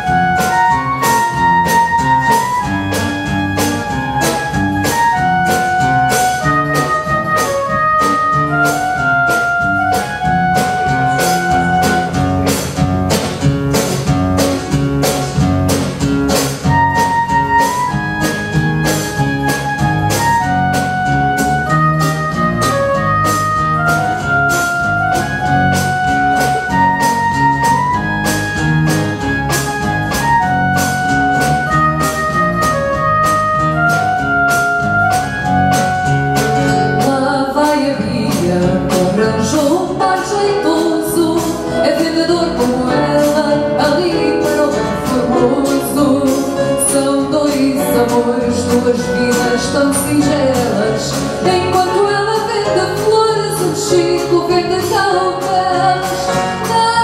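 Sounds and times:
plucked guitar: 0.0 - 57.0
woman singing: 36.7 - 57.0.

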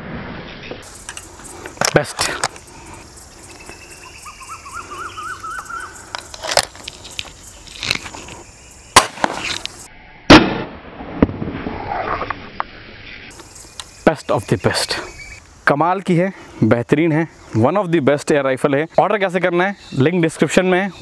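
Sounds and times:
bird singing: 0.4 - 9.9, 12.5 - 15.4, 17.0 - 21.0
air rifle shot: 9.0 - 9.6, 10.3 - 11.6.

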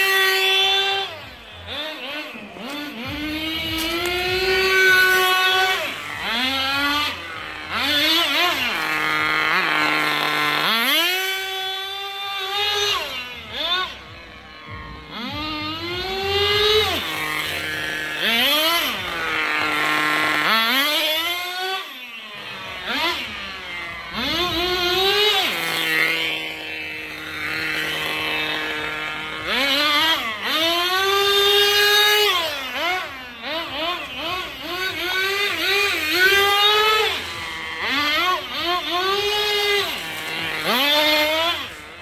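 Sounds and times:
small engine revving: 0.0 - 42.0.

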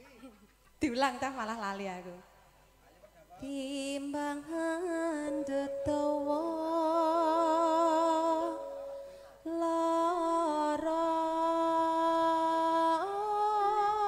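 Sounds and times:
woman singing with vibrato: 3.4 - 14.0.

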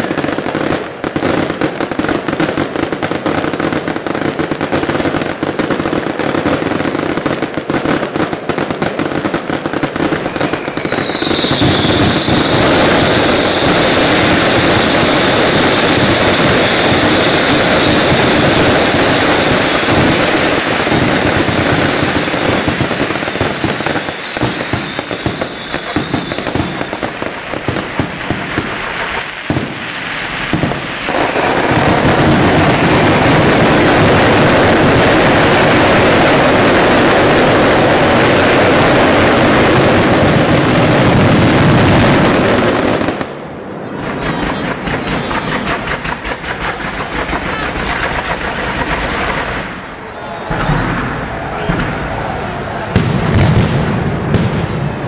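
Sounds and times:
fireworks crackling and banging: 0.0 - 55.0
high whistling tone: 10.2 - 19.9, 23.3 - 27.5.

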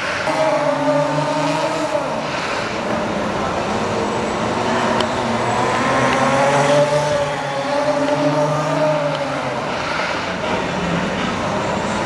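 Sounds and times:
electric atv motor whine: 0.3 - 10.0.

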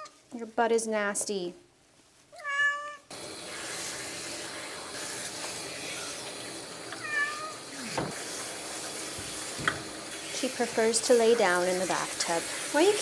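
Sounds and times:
cat meowing: 2.4 - 3.1, 7.0 - 7.6
water spraying from bath sprayer: 3.1 - 13.0.

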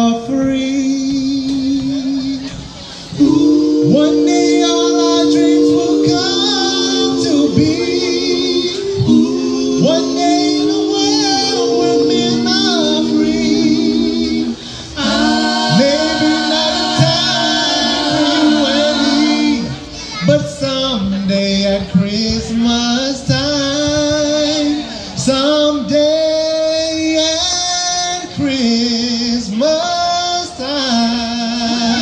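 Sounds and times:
mixed vocal group singing in harmony: 2.4 - 20.2.

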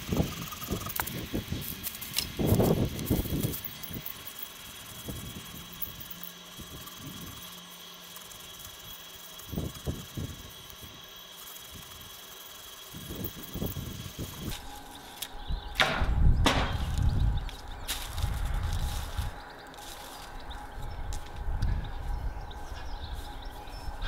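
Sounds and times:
faint background hum: 0.0 - 24.0
sharp knocks: 15.8 - 16.8.

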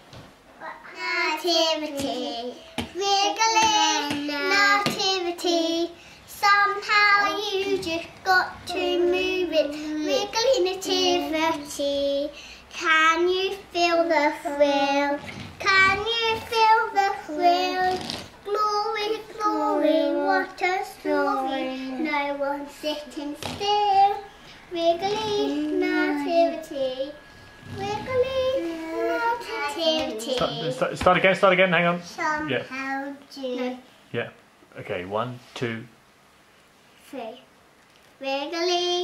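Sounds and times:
child singing: 0.6 - 30.9.

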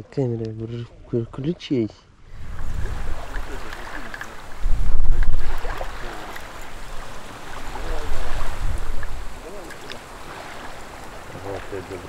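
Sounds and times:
wind rumbling on microphone: 2.2 - 12.0
steady hiss: 2.3 - 12.0.

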